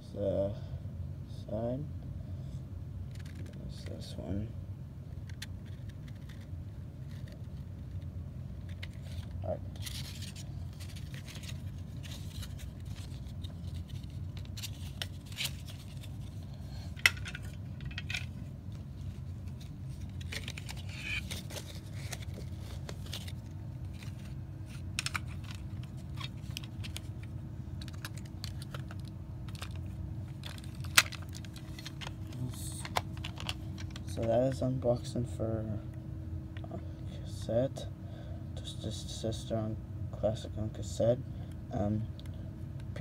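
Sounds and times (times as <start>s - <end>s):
steady low hum: 0.0s - 43.0s
plastic cassette case clicks: 25.0s - 27.0s, 27.8s - 29.8s, 30.4s - 32.2s, 32.8s - 34.0s.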